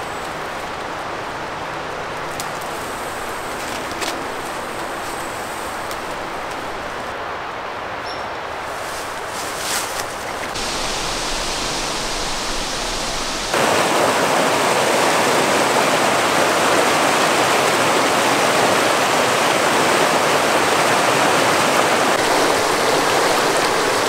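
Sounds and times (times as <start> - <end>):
steady hiss: 0.0 - 7.2, 8.4 - 16.8, 21.8 - 24.0
water rushing over rocks: 10.6 - 24.0.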